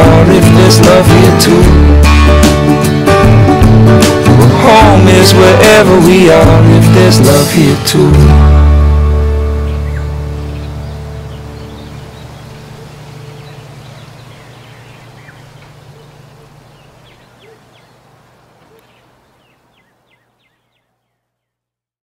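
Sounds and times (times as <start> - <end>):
small birds chirping: 9.4 - 21.7.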